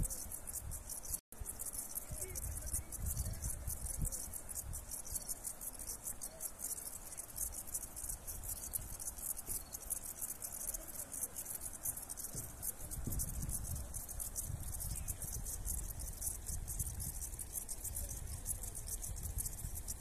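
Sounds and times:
wind rumbling on microphone: 0.0 - 1.2, 2.0 - 5.3, 12.2 - 20.0
insects chirping trill: 0.0 - 20.0.

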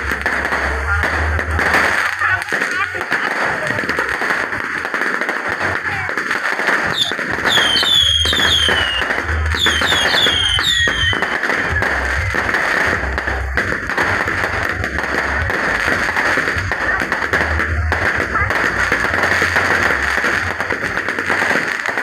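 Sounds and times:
music with heavy bass beat: 0.0 - 2.6, 7.0 - 22.0
fireworks crackling: 0.0 - 22.0.

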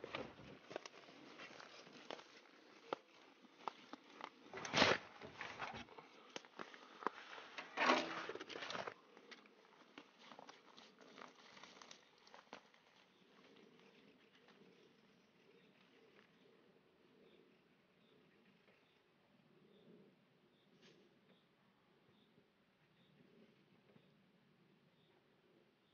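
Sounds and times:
fishing gear rustling and scraping: 0.0 - 13.9.

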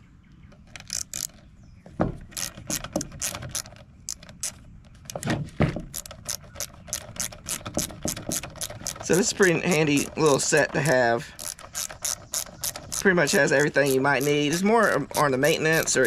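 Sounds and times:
hand ratchet clicking: 0.7 - 1.4, 2.3 - 5.2, 5.9 - 16.0
dull knocks: 1.8 - 3.6, 5.1 - 6.2, 7.2 - 11.0.

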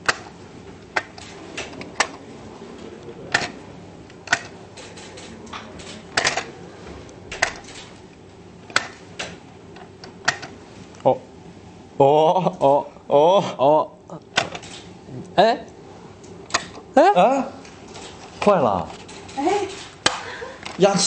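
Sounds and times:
sharp plastic clicks: 0.0 - 2.2, 4.2 - 6.5, 7.3 - 8.0, 8.7 - 10.5, 16.2 - 16.8.

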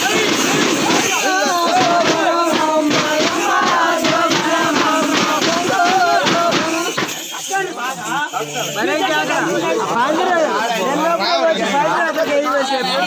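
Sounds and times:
drum beat: 0.0 - 7.8
voices singing a chant-like tune: 0.0 - 12.3
bells jingling: 0.0 - 13.0.

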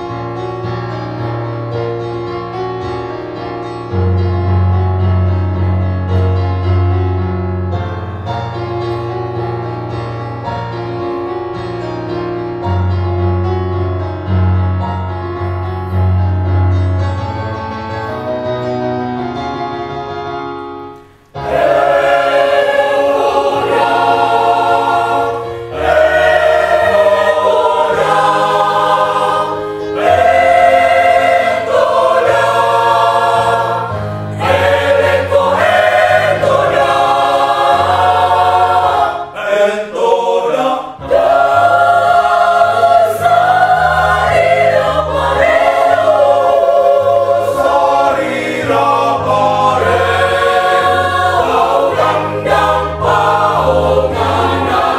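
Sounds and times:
mixed choir singing in harmony: 21.3 - 54.9.

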